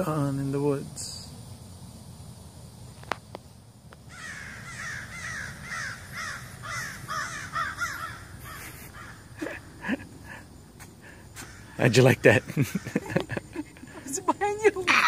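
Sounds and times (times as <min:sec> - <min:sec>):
crows cawing: 0:04.1 - 0:13.6.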